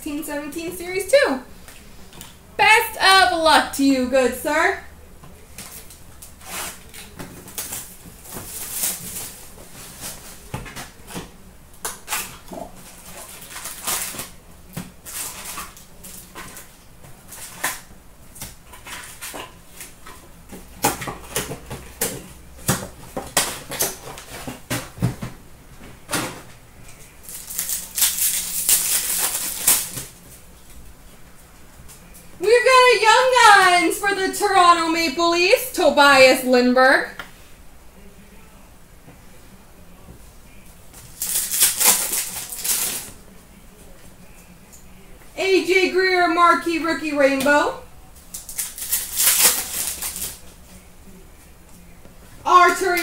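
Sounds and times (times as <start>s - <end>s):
foil wrappers crinkling: 5.5s - 11.2s, 11.9s - 17.9s, 27.0s - 30.4s, 41.0s - 43.2s, 48.3s - 50.5s.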